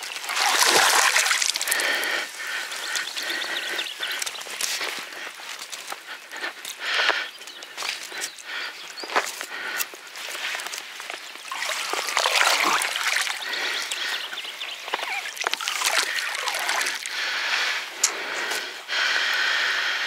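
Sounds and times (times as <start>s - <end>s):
water trickling and splashing: 0.0s - 5.9s, 10.2s - 17.7s.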